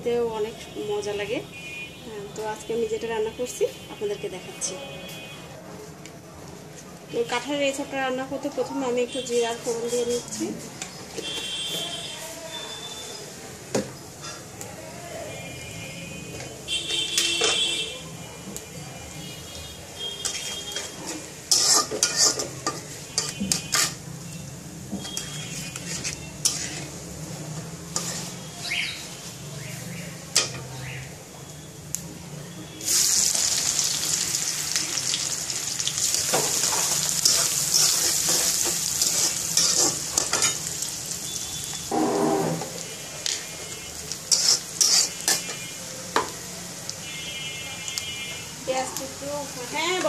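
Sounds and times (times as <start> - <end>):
onion sizzling in oil: 0.0 - 1.5, 7.1 - 18.0, 18.6 - 50.0
seeds spluttering in hot oil: 19.9 - 32.1, 32.7 - 50.0
metal spatula scraping pan: 20.2 - 24.0, 25.0 - 27.1, 27.9 - 28.6, 36.3 - 40.7, 44.3 - 45.6.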